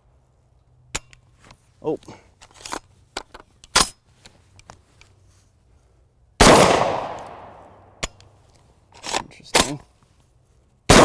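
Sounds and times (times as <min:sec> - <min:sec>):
shotgun shot with echo: 0:06.4 - 0:07.6.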